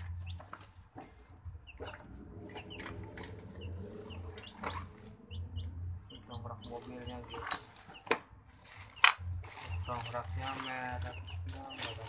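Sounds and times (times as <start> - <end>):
birds chirping: 0.0 - 12.0
packaging rustling and crinkling: 8.6 - 12.0.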